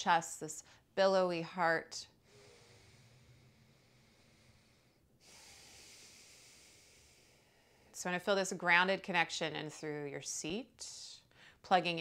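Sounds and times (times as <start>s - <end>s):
slow breathing through nose: 2.2s - 8.0s.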